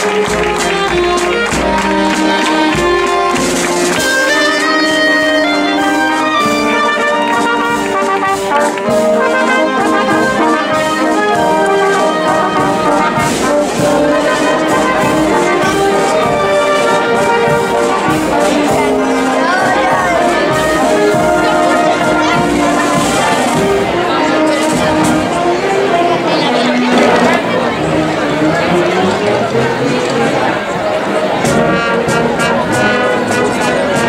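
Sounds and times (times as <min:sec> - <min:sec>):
percussion hits: 0:00.0 - 0:25.6, 0:26.8 - 0:28.0
brass band melody: 0:00.0 - 0:34.0.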